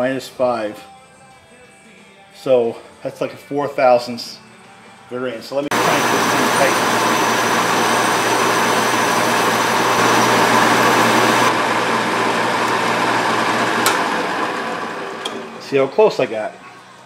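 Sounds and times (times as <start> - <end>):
lathe motor humming: 5.7 - 15.8.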